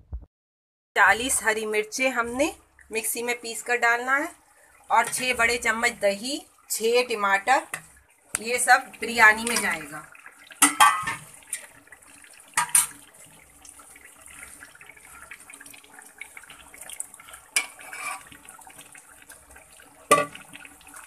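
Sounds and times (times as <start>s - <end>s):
food sizzling in oil: 4.8s - 21.0s
spoon knocking against pot: 10.6s - 11.2s, 20.1s - 20.4s.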